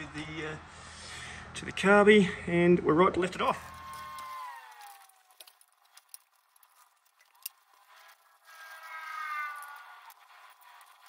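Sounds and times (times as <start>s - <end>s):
hand tools clicking and knocking: 3.6s - 11.0s
faint falling squeak: 8.1s - 11.0s.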